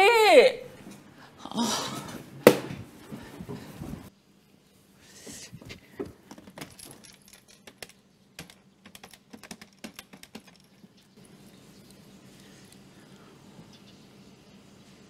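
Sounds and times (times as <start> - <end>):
telephone keys clicking: 7.6 - 10.7.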